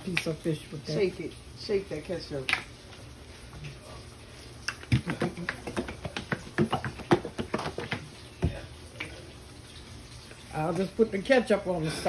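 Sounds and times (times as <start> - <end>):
ketchup knocking in shaken bottle: 4.9 - 8.6.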